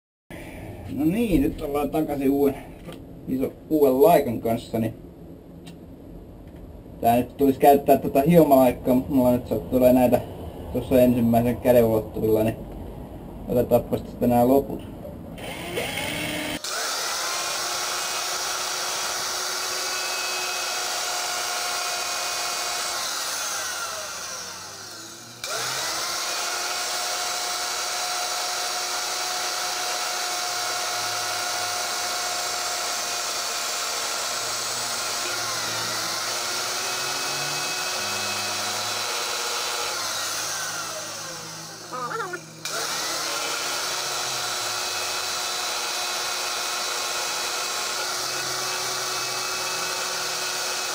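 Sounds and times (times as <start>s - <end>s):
angle grinder grinding gear: 15.4s - 50.9s
cordless drill spinning: 15.4s - 50.9s.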